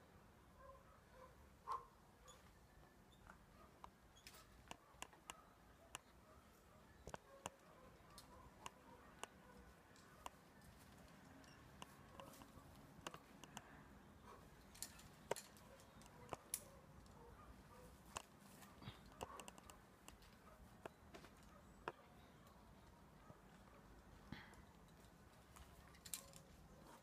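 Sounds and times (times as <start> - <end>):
faint sharp clicks and taps: 7.0 - 17.3, 18.0 - 27.0.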